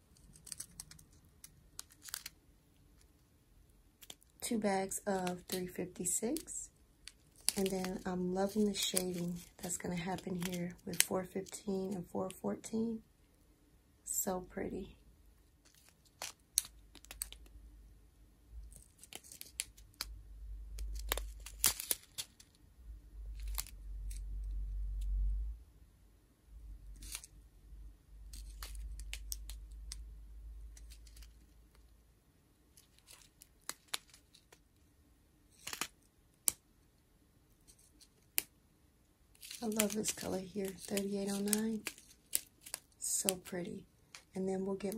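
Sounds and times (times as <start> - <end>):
plastic bags crinkling: 4.0 - 11.5, 39.4 - 44.9.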